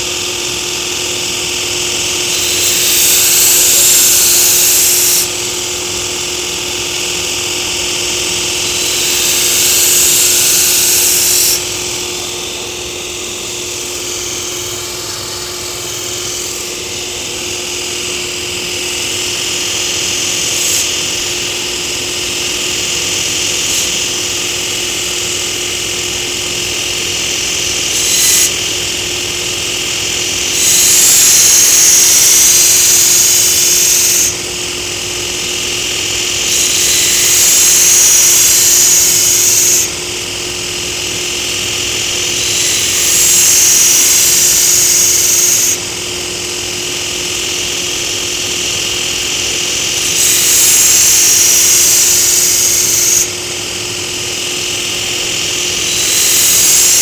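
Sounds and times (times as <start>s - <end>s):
belt grinder motor hum: 0.0s - 57.0s
steel blade grinding hiss: 2.2s - 5.6s, 7.4s - 18.1s, 18.8s - 21.8s, 22.8s - 24.9s, 27.2s - 29.0s, 30.0s - 34.4s, 35.4s - 39.9s, 41.0s - 45.8s, 47.4s - 53.3s, 54.4s - 57.0s.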